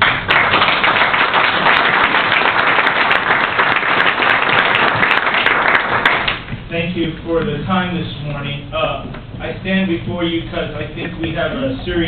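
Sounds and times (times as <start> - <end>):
crowd applauding: 0.0 - 6.5.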